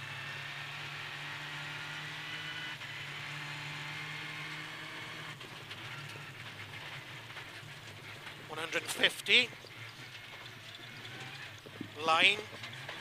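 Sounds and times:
rally car engine running hard: 0.0s - 13.0s.

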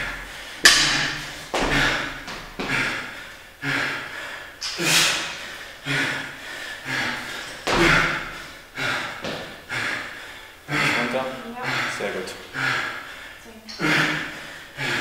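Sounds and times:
man exhaling forcefully: 0.0s - 11.0s.

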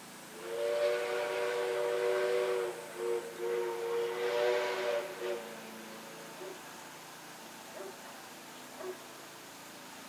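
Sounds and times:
steam locomotive whistle: 0.3s - 5.6s.

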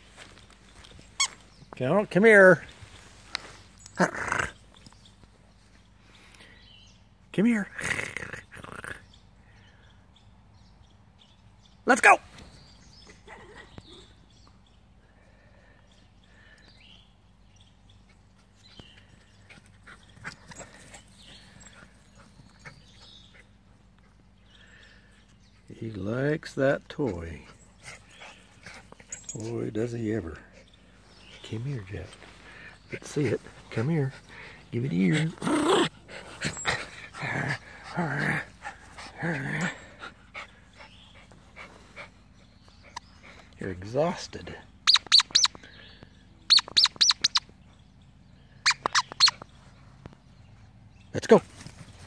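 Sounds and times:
dog growling: 4.0s - 4.6s, 7.8s - 9.1s, 34.2s - 40.1s
dog panting: 32.5s - 43.6s.

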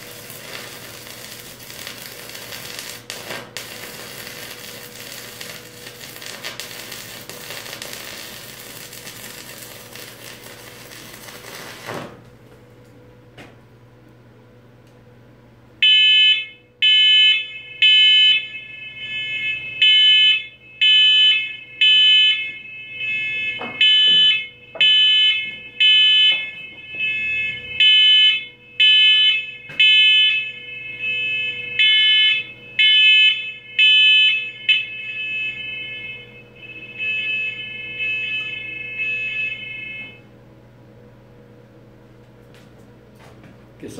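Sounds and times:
smoke alarm beeping: 15.8s - 40.3s.

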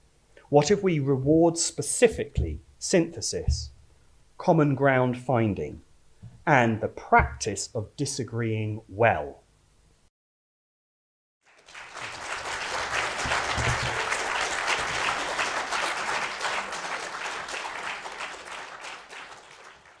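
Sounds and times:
audience clapping: 11.4s - 20.0s.

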